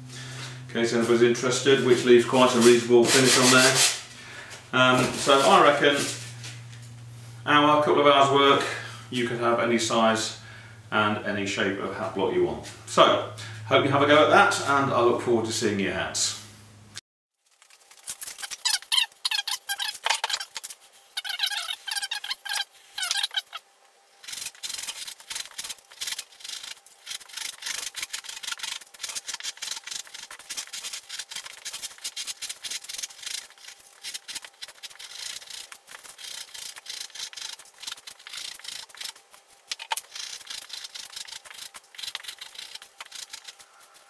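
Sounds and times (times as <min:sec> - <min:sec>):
knife cutting and scraping foam: 0:02.4 - 0:04.0, 0:18.2 - 0:23.6, 0:24.2 - 0:44.0.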